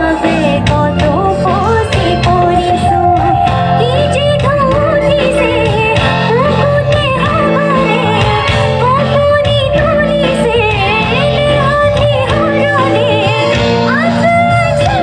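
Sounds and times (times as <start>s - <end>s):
repeating bass notes: 0.0s - 15.0s
woman singing into a microphone: 0.0s - 15.0s
instrumental drone: 1.7s - 8.8s.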